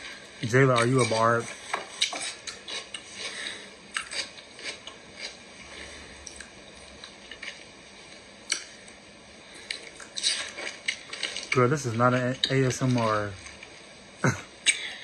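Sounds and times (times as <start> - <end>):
wet chewing and mouth smacks: 1.7 - 5.4, 6.2 - 7.7, 8.4 - 8.8, 9.6 - 11.6.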